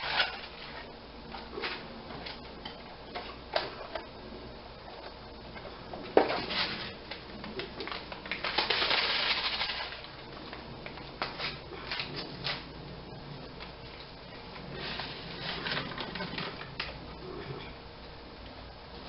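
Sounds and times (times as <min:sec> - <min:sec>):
paper packet crinkling: 0:06.4 - 0:10.2
paper packet tearing: 0:08.2 - 0:10.0.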